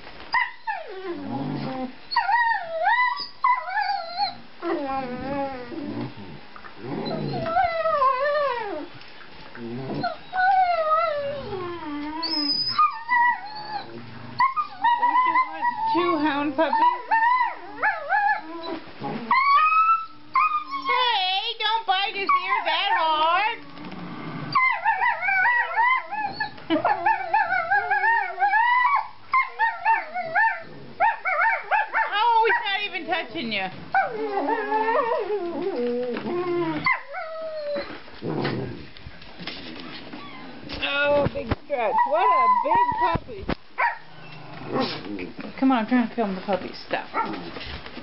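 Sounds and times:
puppy howling: 7.0 - 8.9, 10.0 - 21.1, 24.5 - 32.8, 33.9 - 37.9, 41.8 - 43.2.

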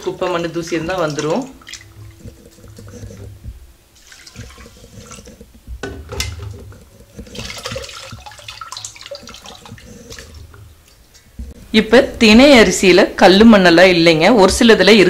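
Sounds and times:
water sloshing in steel bowl: 0.0 - 11.7.

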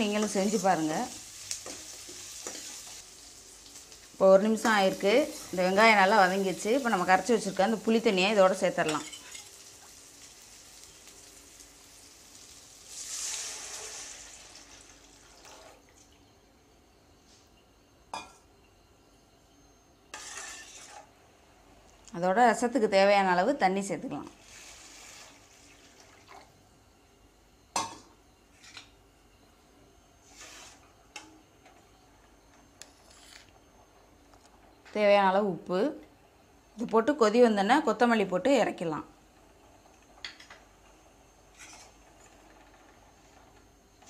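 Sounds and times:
liquid hissing in hot pan: 9.4 - 15.0, 24.4 - 25.8.

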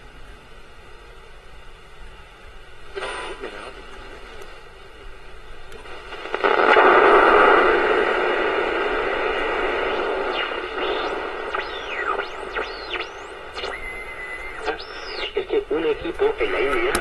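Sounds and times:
radio static hiss: 2.7 - 17.0
radio whistles gliding in pitch: 6.6 - 16.7.

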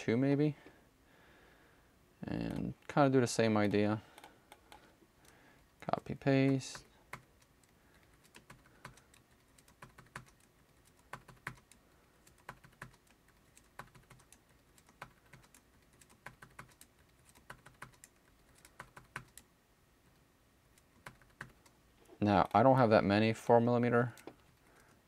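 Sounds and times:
keyboard keys clicking: 6.4 - 19.5, 20.8 - 21.7.

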